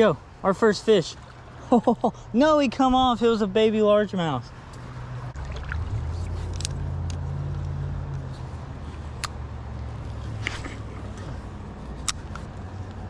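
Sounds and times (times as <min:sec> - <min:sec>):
engine humming: 0:04.6 - 0:13.0.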